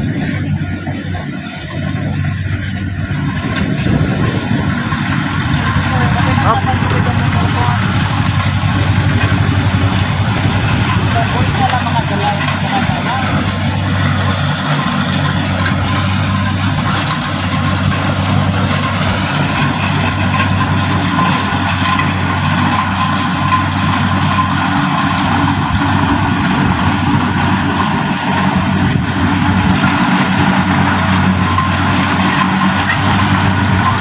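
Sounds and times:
combine harvester engine drone: 0.0s - 34.0s.

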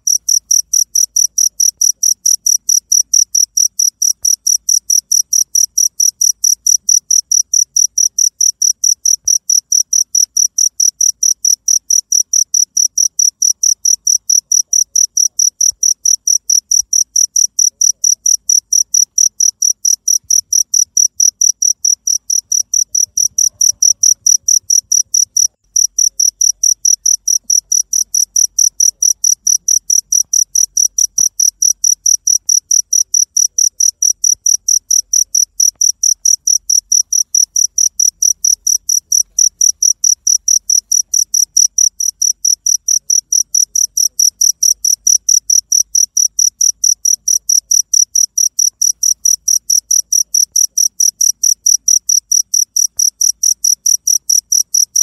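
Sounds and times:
cricket chirping: 0.0s - 55.0s.

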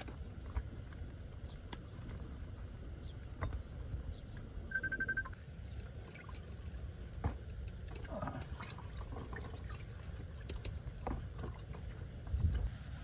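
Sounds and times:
wind rumble: 5.4s - 13.0s.

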